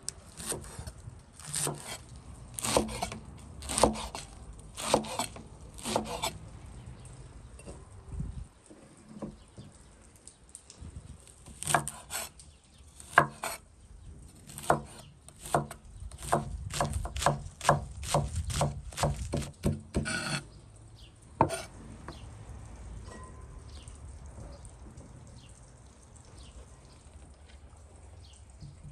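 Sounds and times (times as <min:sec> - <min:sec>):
knife chopping on wooden board: 0:02.6 - 0:06.3, 0:11.6 - 0:12.3, 0:13.0 - 0:13.6, 0:14.5 - 0:20.4, 0:21.4 - 0:21.7.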